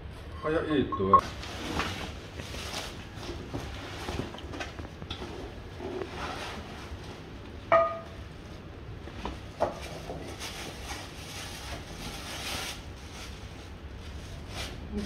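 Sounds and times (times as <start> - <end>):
bubble wrap and plastic rustling: 1.2 - 7.4, 8.4 - 15.0.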